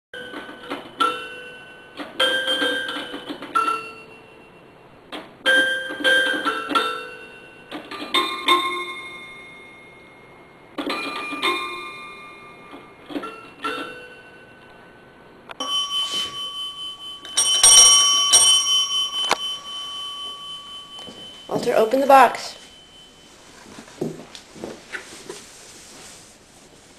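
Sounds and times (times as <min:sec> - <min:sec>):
desk bell ringing: 0:00.2 - 0:04.8, 0:05.5 - 0:24.3.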